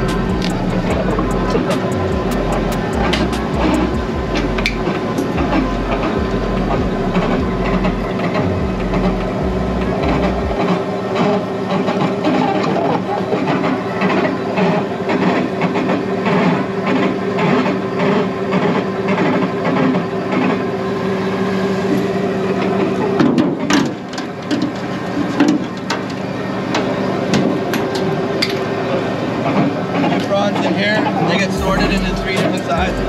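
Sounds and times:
hydraulic trap hauler humming: 0.0 - 33.0.

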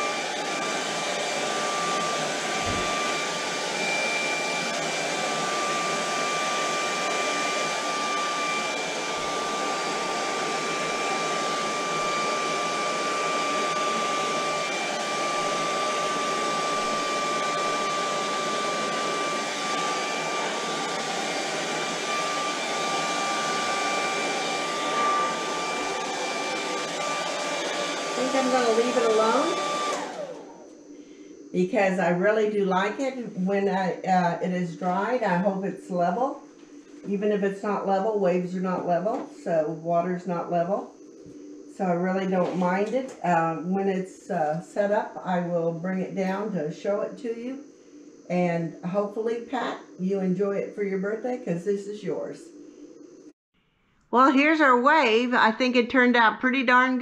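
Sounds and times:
hair dryer running: 0.0 - 35.7, 37.0 - 44.0.

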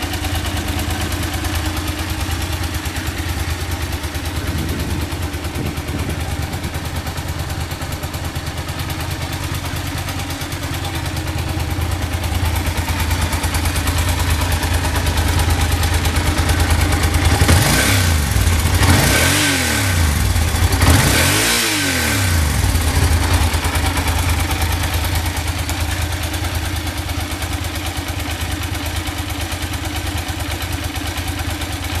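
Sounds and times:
motorcycle engine idling: 0.0 - 32.0
engine revving: 15.7 - 23.8.

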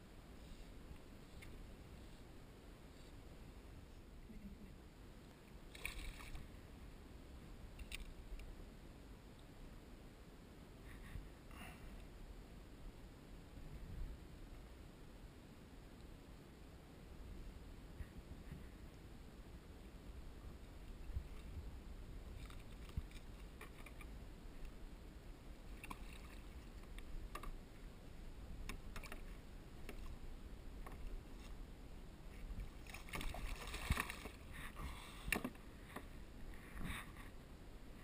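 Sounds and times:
low steady rumble: 0.0 - 38.0
water splashing against kayak: 32.6 - 34.5.

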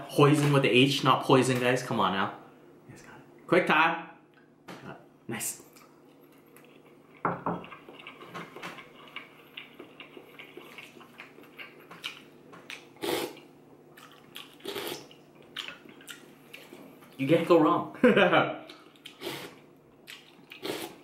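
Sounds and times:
chewing and wet mouth sounds: 5.8 - 17.2, 18.6 - 21.0
person slurping noodles: 13.0 - 13.4, 14.6 - 15.1, 19.1 - 19.6, 20.6 - 21.0.

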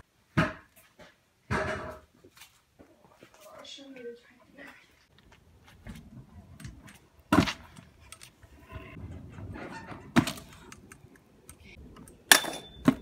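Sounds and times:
wheels rolling: 5.1 - 13.0
scooter slamming on concrete: 7.3 - 7.8, 8.9 - 10.7.

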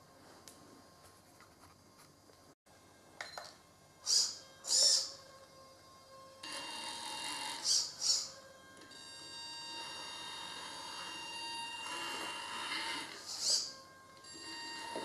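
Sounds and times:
electric motor and gear whine: 2.8 - 15.0
servo whirs: 4.0 - 5.2, 6.4 - 15.0.

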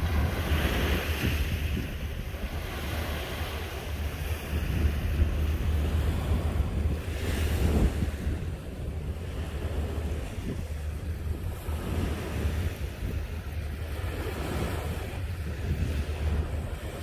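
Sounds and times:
small waves washing on beach: 0.0 - 17.0
wind rumble on microphone: 0.0 - 17.0.

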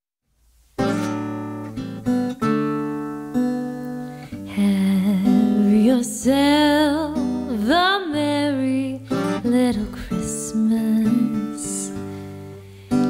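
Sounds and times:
acoustic guitar chords: 0.7 - 13.0
woman singing: 4.4 - 12.2.

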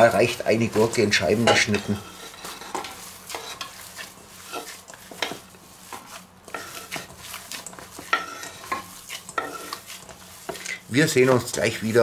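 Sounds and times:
meat scraping metal bowl: 0.0 - 12.0
meat squishing: 3.0 - 11.9.

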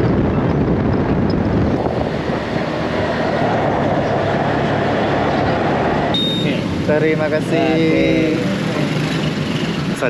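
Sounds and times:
wind buffeting microphone: 0.0 - 7.2
tyres on road: 0.0 - 10.0
small motorcycle running: 6.2 - 10.0.

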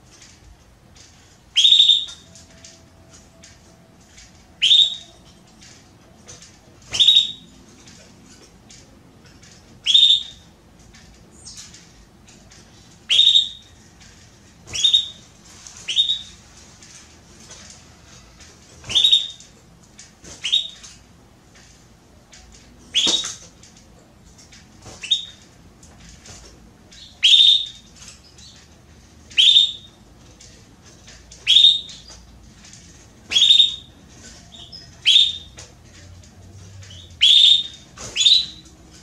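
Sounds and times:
canary upward-sweeping calls: 1.6 - 2.4, 4.6 - 5.3, 6.9 - 7.4, 9.8 - 10.4, 13.0 - 13.7, 14.7 - 16.4, 18.9 - 19.5, 20.4 - 20.9, 22.9 - 23.4, 27.0 - 27.9, 29.3 - 30.0, 31.4 - 32.2, 33.3 - 33.9, 34.5 - 35.6, 36.9 - 38.7.

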